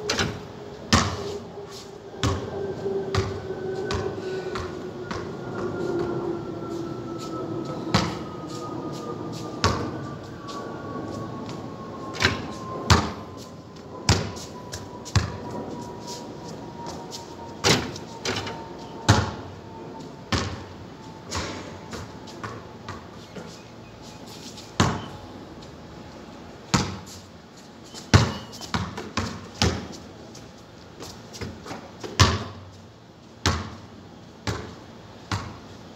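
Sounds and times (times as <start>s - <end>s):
basketball bouncing on concrete: 20.3s - 20.6s, 24.8s - 25.1s, 28.1s - 29.9s, 31.4s - 32.6s, 33.4s - 33.8s, 34.4s - 35.6s.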